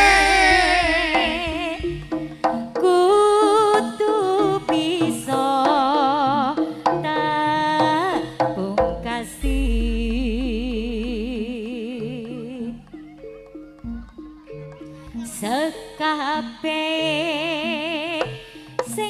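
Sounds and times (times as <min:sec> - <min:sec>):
deep bass note: 0:00.0 - 0:02.2, 0:09.4 - 0:11.7
wavering vibrato melody: 0:00.0 - 0:02.8
hand drum beats: 0:00.0 - 0:15.5.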